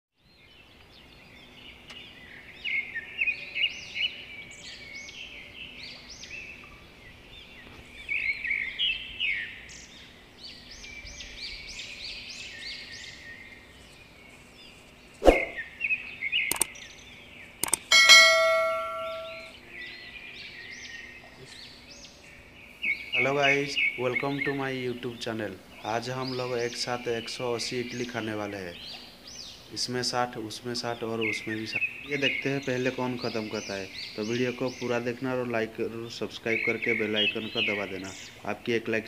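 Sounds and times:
birds chirping: 0:00.2 - 0:39.0
sharp clicks: 0:16.5 - 0:16.7, 0:17.6 - 0:18.2
bell-like metallic ring: 0:17.9 - 0:19.5.

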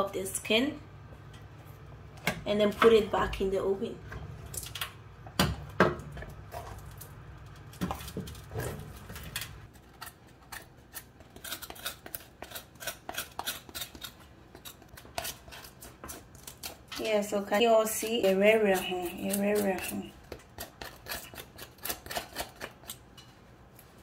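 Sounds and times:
knife scraping roasted skin: 0:07.9 - 0:17.3, 0:17.9 - 0:23.1.

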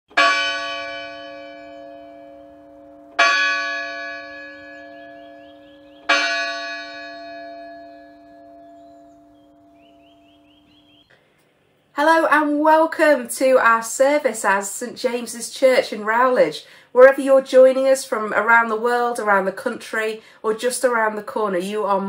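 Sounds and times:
church bell tolling: 0:00.1 - 0:10.7.

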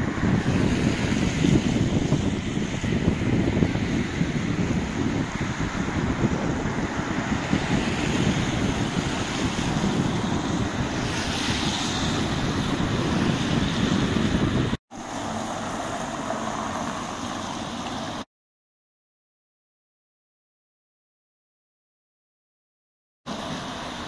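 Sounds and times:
wind buffeting microphone: 0:00.0 - 0:18.2
cars passing on road: 0:00.0 - 0:18.3, 0:23.3 - 0:24.0.

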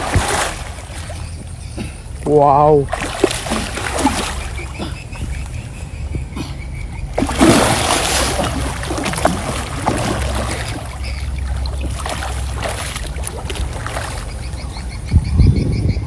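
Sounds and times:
fish thrashing in water: 0:00.0 - 0:02.0, 0:02.9 - 0:05.6, 0:07.0 - 0:14.7
water splashing and sloshing: 0:00.0 - 0:15.0.

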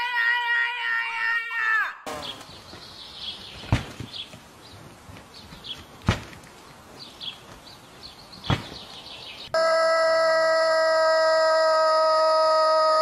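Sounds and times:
birds chirping: 0:02.1 - 0:09.6.

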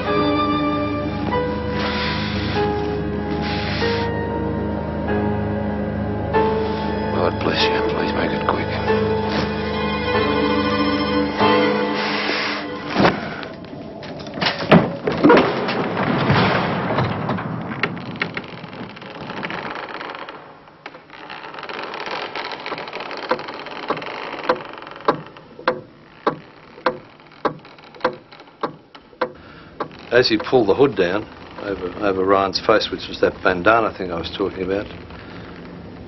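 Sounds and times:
sharp knocks: 0:23.3 - 0:30.6.

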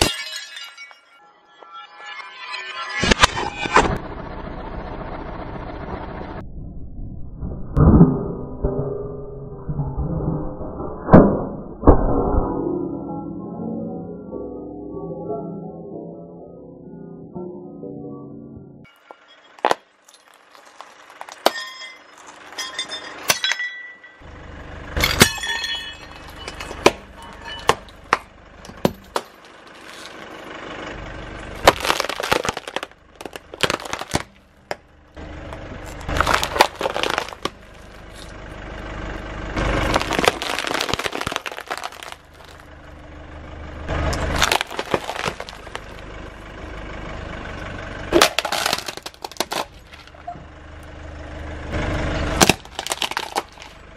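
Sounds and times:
low rumble: 0:03.1 - 0:18.9
ceramic and plastic cracking: 0:31.6 - 0:34.4, 0:36.0 - 0:38.3, 0:39.8 - 0:42.6, 0:44.2 - 0:46.0, 0:48.2 - 0:50.1, 0:52.4 - 0:53.8.

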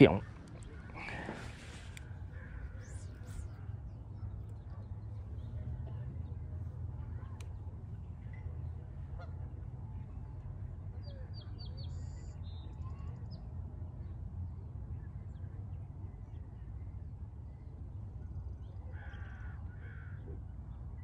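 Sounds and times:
wild birds calling: 0:00.0 - 0:05.3, 0:18.8 - 0:20.6
steady low rumble: 0:00.0 - 0:21.0.

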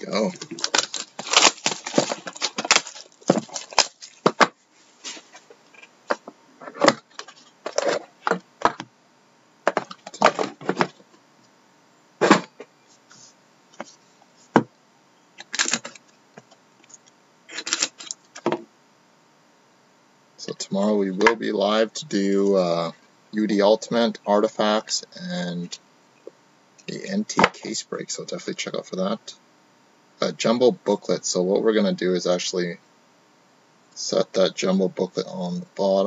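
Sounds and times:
cardboard box clicks and rustles: 0:00.4 - 0:04.5.

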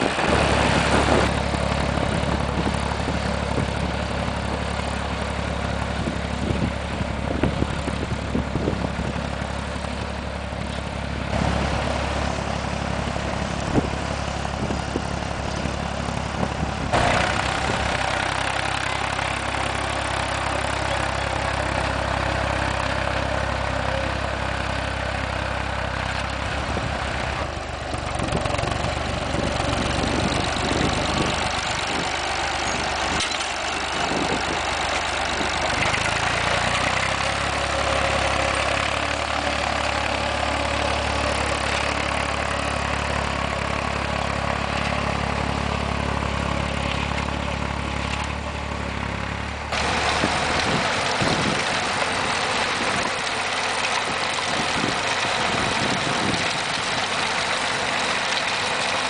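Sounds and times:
tractor driving across field: 0:00.0 - 0:59.0
tractor engine under load: 0:00.0 - 0:59.0.

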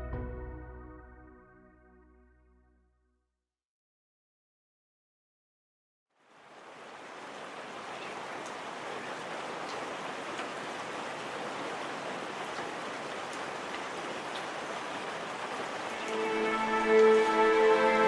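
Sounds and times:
steady rain: 0:06.1 - 0:18.0.

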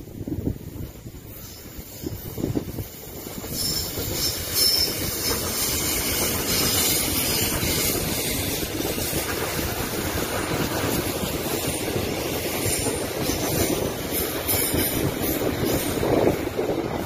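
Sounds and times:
train wheels rumbling on rails: 0:00.0 - 0:17.0
wheel squeal: 0:03.4 - 0:08.6.

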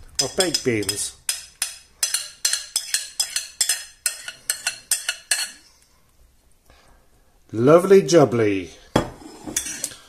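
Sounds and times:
spoon clinking on glass dish: 0:00.2 - 0:05.6.

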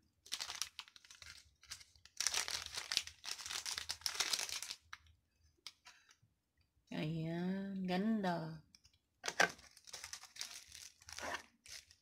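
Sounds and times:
plastic bag crinkling: 0:00.2 - 0:05.1, 0:09.4 - 0:12.0.

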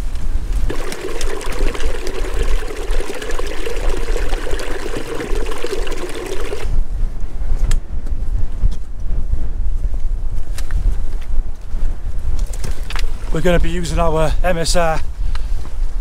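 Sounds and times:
wind rumble on microphone: 0:00.0 - 0:00.8, 0:06.4 - 0:16.0
water trickling over stones: 0:00.7 - 0:06.7.

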